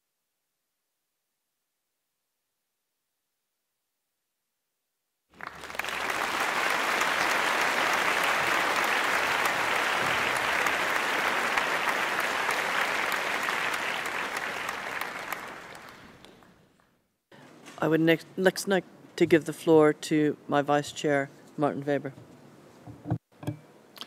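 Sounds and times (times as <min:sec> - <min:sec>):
audience applauding: 0:05.4 - 0:16.6.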